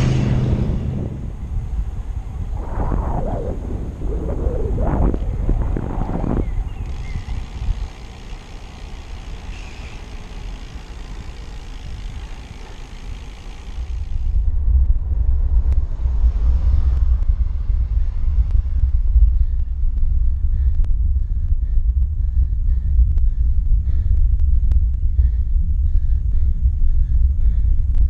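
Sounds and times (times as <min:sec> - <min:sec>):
wind buffeting microphone: 0:00.0 - 0:08.5
wind and road rumble: 0:00.0 - 0:28.0.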